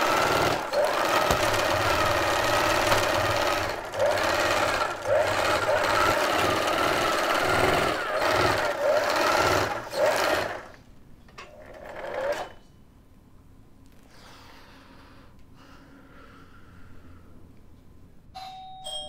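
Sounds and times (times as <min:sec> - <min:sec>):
sewing machine running: 0:00.0 - 0:10.8, 0:11.5 - 0:12.6.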